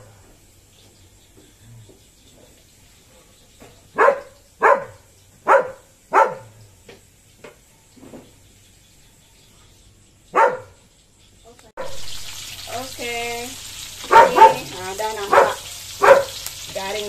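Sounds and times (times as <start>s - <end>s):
dog barking: 3.9s - 6.6s, 10.3s - 10.8s, 14.0s - 16.4s.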